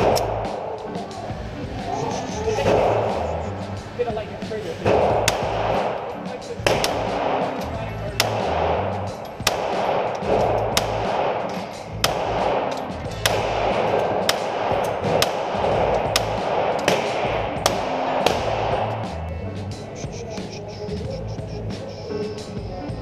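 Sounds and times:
pistol shots echoing indoors: 0.0s - 0.8s, 4.8s - 19.1s
background music with bass: 0.0s - 23.0s.

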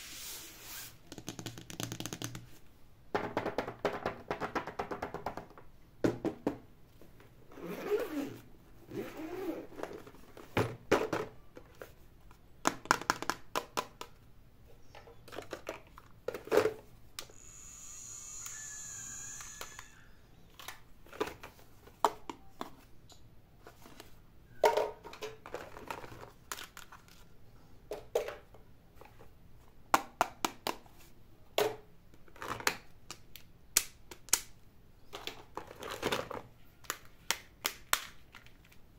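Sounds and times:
steady high hiss: 0.0s - 1.0s, 17.3s - 20.4s.

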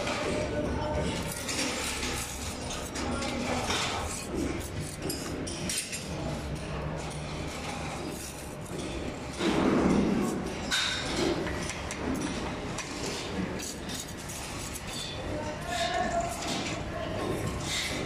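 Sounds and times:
trowel scraping mortar: 1.1s - 5.5s, 7.5s - 9.1s.

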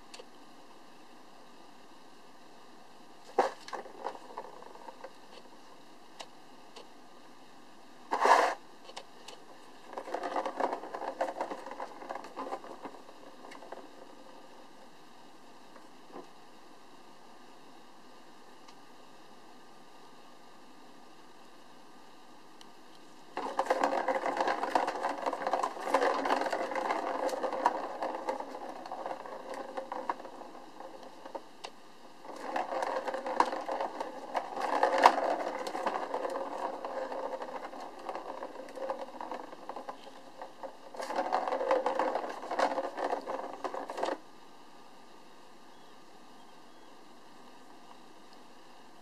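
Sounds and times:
plastic ball rattling around track: 3.3s - 5.5s, 8.1s - 14.7s, 23.4s - 44.2s.

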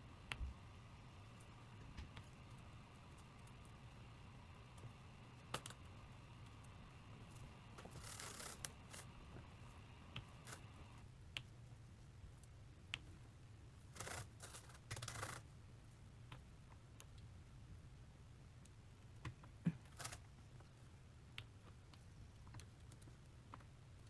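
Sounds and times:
scratchy rustles: 7.3s - 9.2s.

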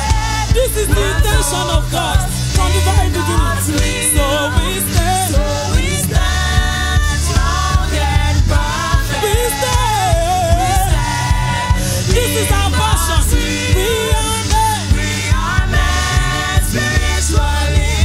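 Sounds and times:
gospel worship music: 0.0s - 18.0s
person singing: 0.0s - 18.0s.

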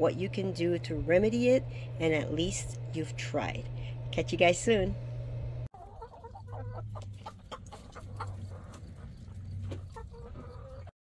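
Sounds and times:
steady low hum: 0.0s - 10.8s
hens clucking: 5.7s - 10.9s.

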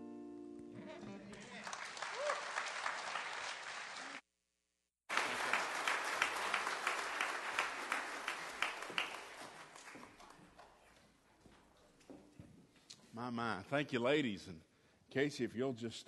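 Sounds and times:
people applauding: 1.1s - 4.2s, 5.1s - 10.8s.

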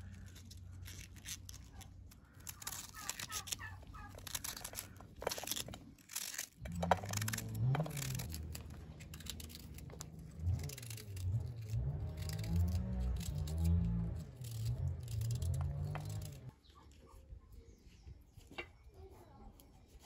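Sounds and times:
low wavering rumble: 6.6s - 16.5s.

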